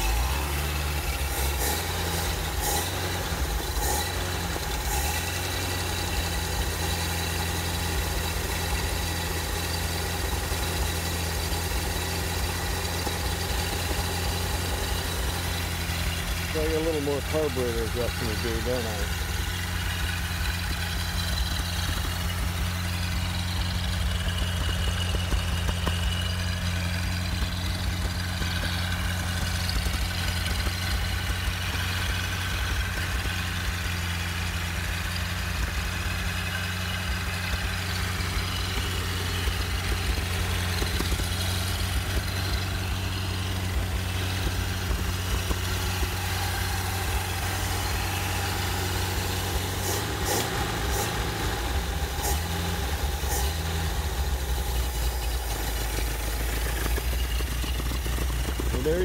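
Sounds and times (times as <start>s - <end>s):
engine idling steadily: 0.0s - 59.0s
man talking: 16.5s - 19.2s, 58.7s - 59.0s.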